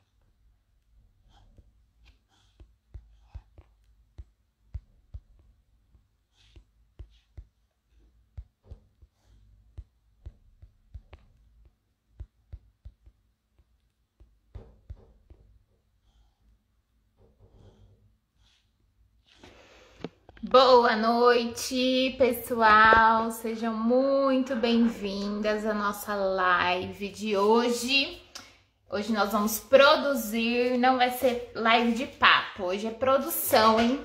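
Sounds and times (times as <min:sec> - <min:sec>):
soft taps and knocks: 0:02.0 - 0:15.6.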